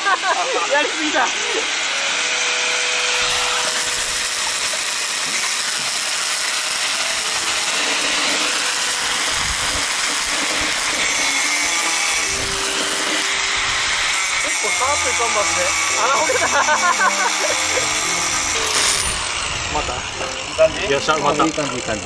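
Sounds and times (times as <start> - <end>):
welder arc crackling: 0.8 - 16.5, 18.6 - 20.2.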